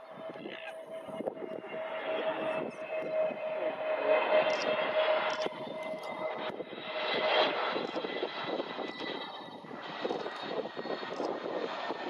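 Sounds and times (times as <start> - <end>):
jet engines whining: 0.0 - 12.0.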